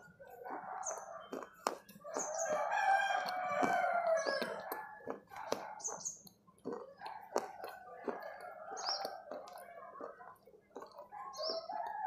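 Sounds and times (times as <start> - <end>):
chewing mouth clicks: 0.0 - 12.0
rooster crowing: 2.0 - 5.2, 11.6 - 12.0.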